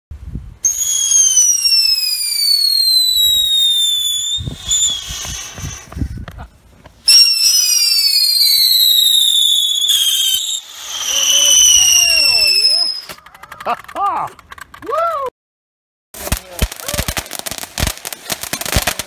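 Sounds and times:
firework falling whistle: 0.6s - 6.1s, 7.0s - 13.2s
firework sputtering: 0.6s - 14.8s, 16.2s - 19.0s.

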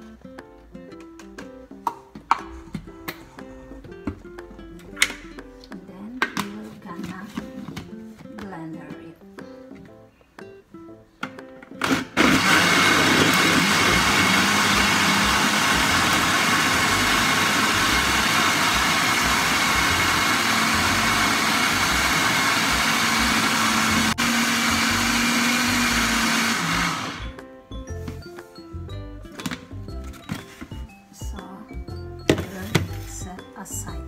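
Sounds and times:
blender running: 11.8s - 27.4s.

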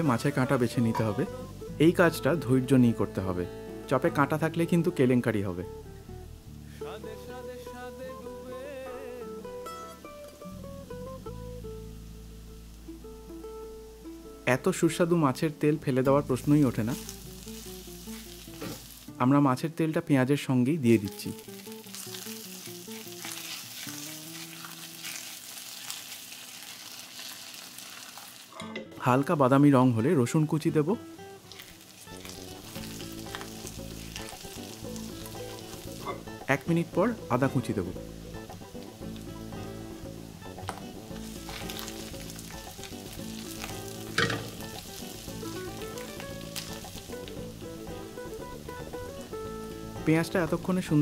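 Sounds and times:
soft background music: 0.0s - 51.0s
onions sizzling in hot oil: 12.6s - 19.2s, 21.0s - 28.6s, 30.5s - 51.0s.

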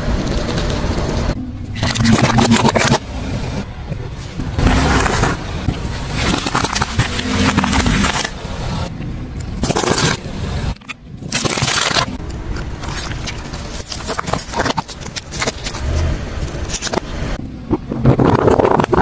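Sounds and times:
tyre crushing objects crackling: 4.6s - 8.4s.

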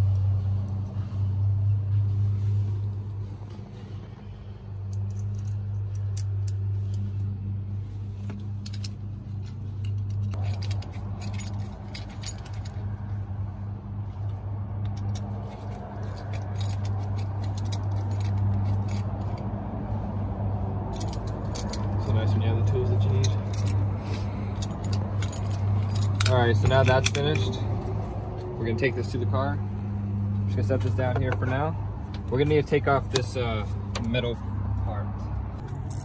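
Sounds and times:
small metal parts clinking: 4.8s - 7.3s, 8.3s - 12.9s, 14.8s - 19.5s, 20.9s - 22.3s, 22.9s - 27.6s, 35.6s - 36.0s.

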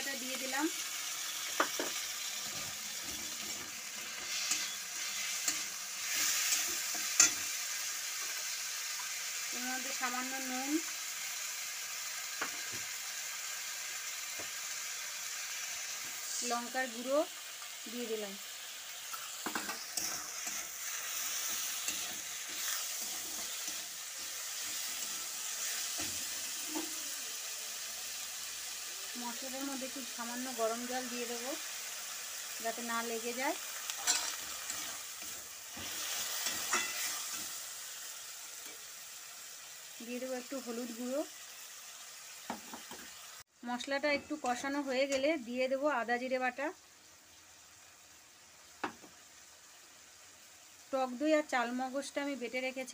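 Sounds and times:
vegetables sizzling in hot oil: 0.0s - 52.9s
metal spatula scraping: 2.4s - 7.6s, 19.0s - 27.0s, 33.9s - 37.6s.

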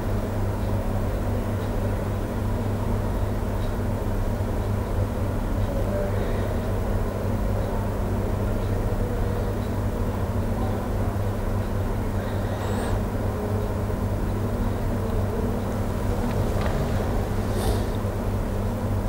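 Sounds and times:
low hum: 12.9s - 18.9s.

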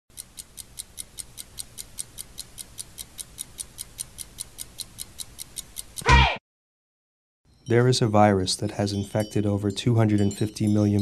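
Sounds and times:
rapid ticking: 0.1s - 6.0s.

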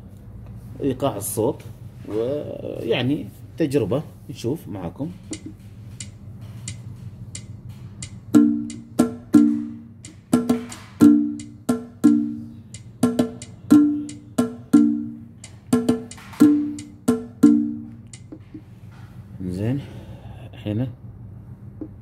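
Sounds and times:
sharp high drum hits: 8.3s - 17.9s.

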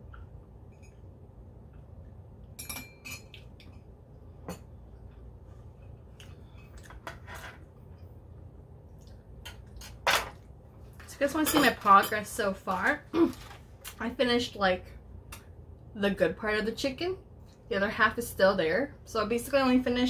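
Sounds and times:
faint low hum: 0.0s - 20.0s
ceramic mug clinking: 2.6s - 3.4s.

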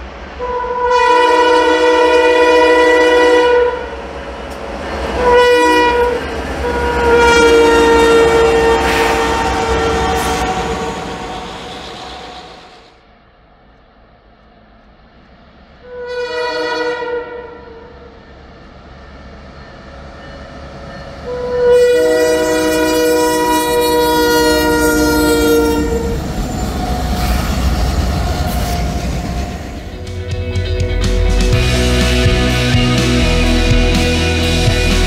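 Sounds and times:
low rumble of passing train: 0.0s - 35.0s
locomotive air horn chord: 0.4s - 4.1s, 5.2s - 11.4s, 15.8s - 18.0s, 21.2s - 26.2s.

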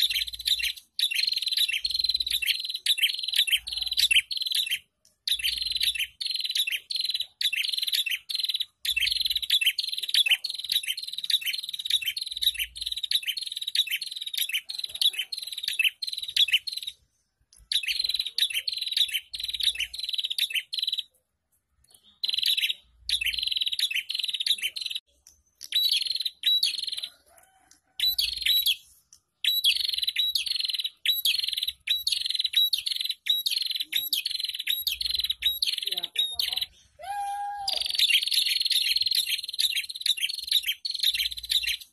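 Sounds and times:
songbird chirping rapidly: 0.0s - 41.9s.

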